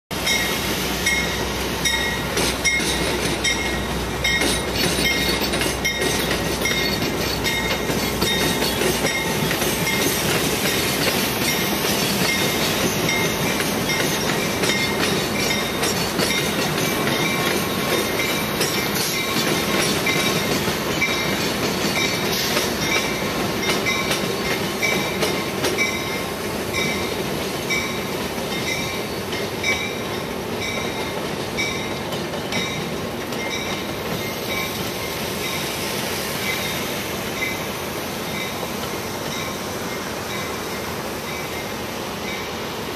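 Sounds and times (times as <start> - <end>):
train wheels clacking over rails: 0.1 - 42.9
high wheel squeal: 0.3 - 25.1.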